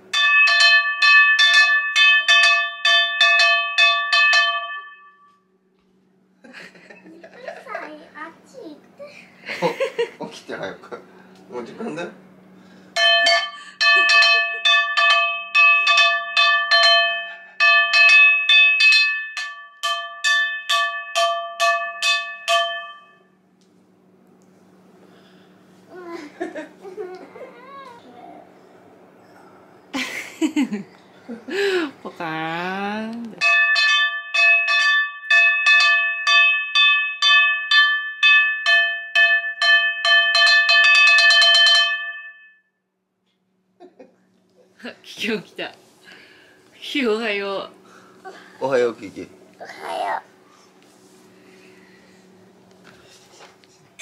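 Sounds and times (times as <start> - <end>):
frying pan being banged: 13.0 - 23.2, 33.4 - 42.2.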